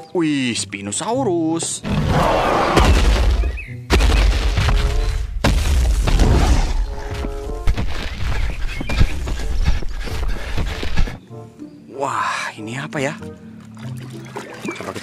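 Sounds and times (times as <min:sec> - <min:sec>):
crashing impacts: 0:02.8 - 0:06.9
deep rumbling booms: 0:02.8 - 0:06.9.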